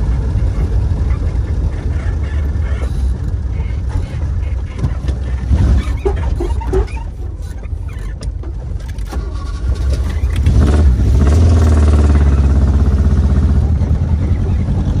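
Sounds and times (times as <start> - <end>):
ignition key starting engine: 8.7 - 10.9
car engine revving: 9.1 - 15.0.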